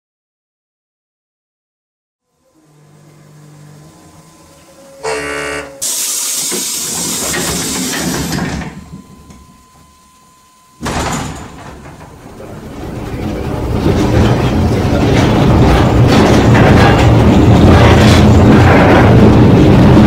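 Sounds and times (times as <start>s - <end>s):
short horn-like tone: 2.2s - 6.4s
train traction motors running: 2.3s - 20.0s
compressed-air hiss: 5.0s - 8.6s.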